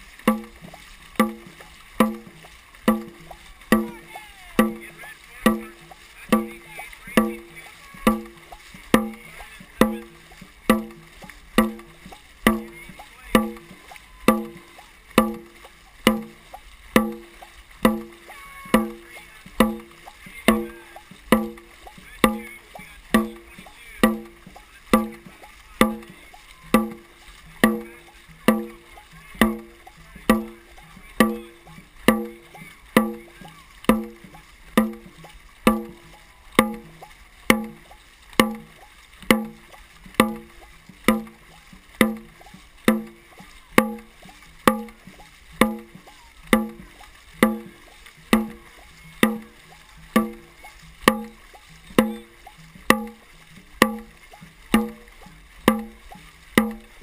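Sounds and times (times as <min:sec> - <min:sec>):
drum beaten at a steady rhythm: 0:00.0 - 0:57.0
paddles splashing in water: 0:00.0 - 0:57.0.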